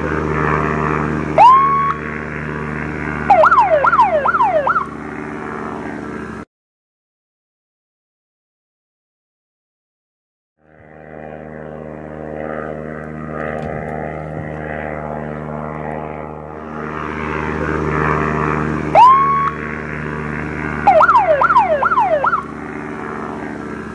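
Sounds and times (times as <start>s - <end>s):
alarm siren: 0.0s - 5.2s, 16.7s - 23.9s
propeller aircraft engine droning: 0.0s - 6.5s, 10.6s - 23.9s.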